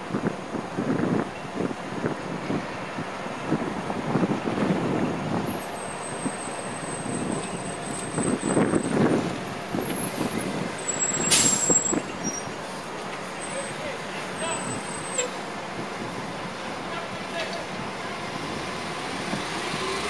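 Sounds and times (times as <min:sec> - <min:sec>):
bus engine rumbling: 0:00.0 - 0:20.0
air brakes hissing: 0:10.9 - 0:12.5.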